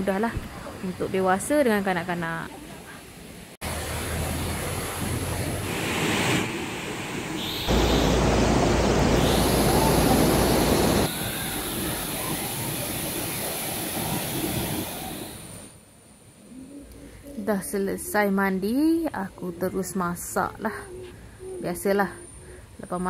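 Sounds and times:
river rushing over stones: 7.6 - 15.5.

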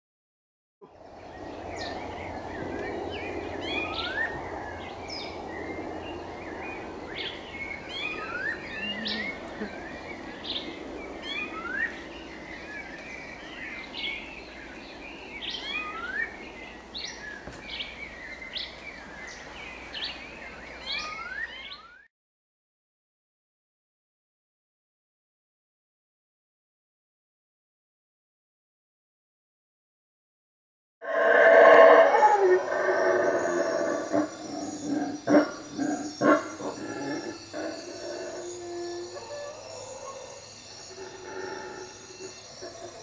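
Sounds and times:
birds chirping: 1.0 - 22.1, 31.3 - 43.0.

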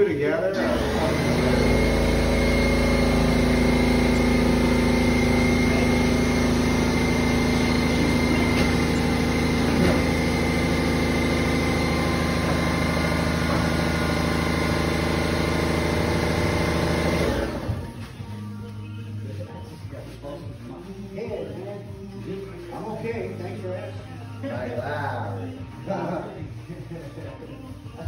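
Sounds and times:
motor humming: 0.6 - 18.0
high whine: 1.4 - 18.0.

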